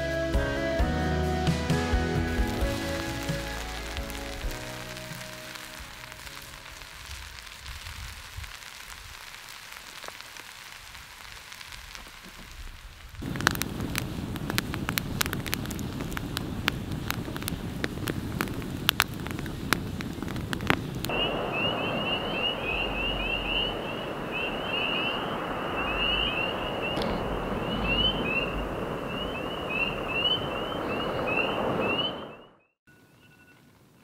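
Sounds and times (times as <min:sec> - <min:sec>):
campfire crackling and popping: 0:01.7 - 0:32.3
frogs peeping: 0:21.1 - 0:32.6.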